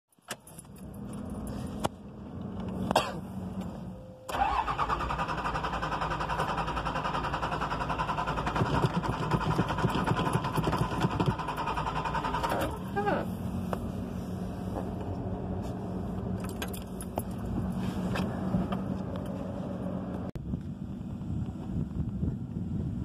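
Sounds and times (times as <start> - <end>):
starter motor whine: 4.3 - 13.2
diesel engine rattly idle: 4.4 - 13.7.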